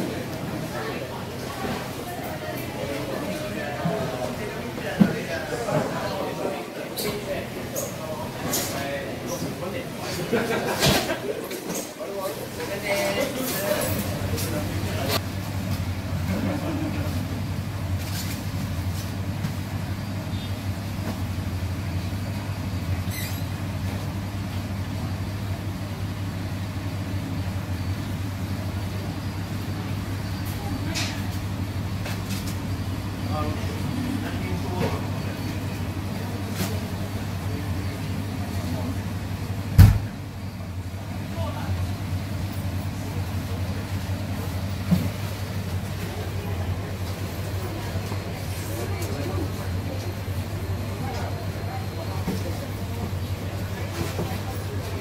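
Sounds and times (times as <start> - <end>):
low machine hum: 0.0 - 55.0
noisy background: 0.0 - 55.0
tank pump humming: 19.0 - 42.6.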